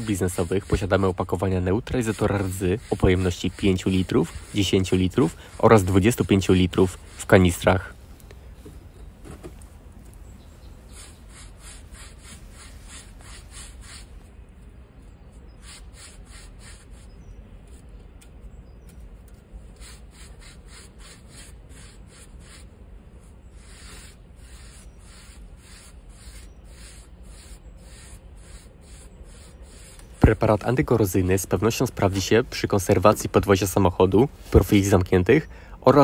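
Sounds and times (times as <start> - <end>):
paintbrush scrubbing steel plate: 0.0 - 7.6, 10.9 - 14.1, 15.5 - 17.2, 19.7 - 22.7, 23.6 - 33.4.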